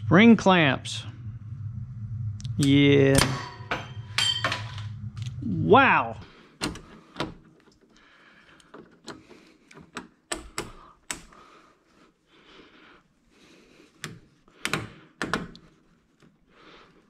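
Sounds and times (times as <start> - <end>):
metal hand tools clanking: 3.2 - 4.9.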